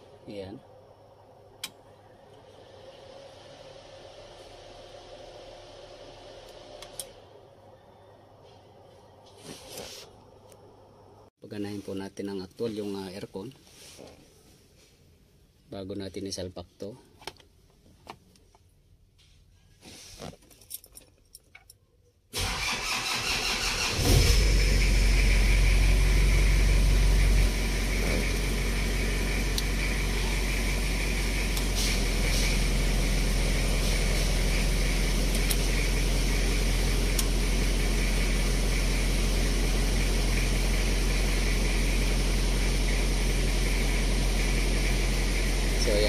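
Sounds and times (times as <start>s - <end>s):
car engine starting and idling: 0.0s - 8.4s, 22.3s - 46.0s.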